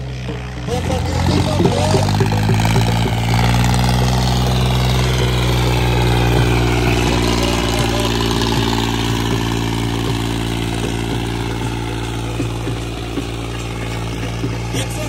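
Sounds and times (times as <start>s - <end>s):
diesel tractor engine under load: 0.0s - 15.0s.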